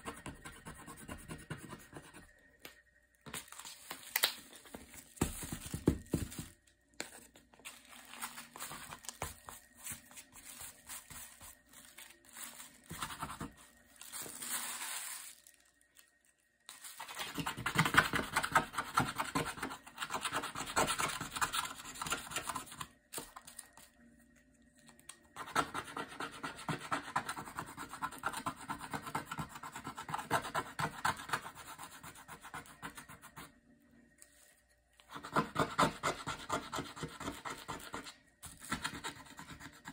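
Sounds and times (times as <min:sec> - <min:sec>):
plastic sheet crinkling: 0:03.3 - 0:17.4.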